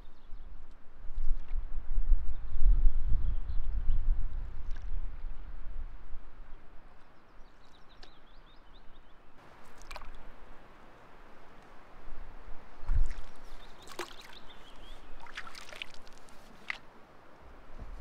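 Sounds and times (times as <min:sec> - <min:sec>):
wind buffeting microphone: 0:00.0 - 0:07.0, 0:12.0 - 0:13.8
paddle splashing water: 0:09.4 - 0:10.3, 0:12.8 - 0:16.9.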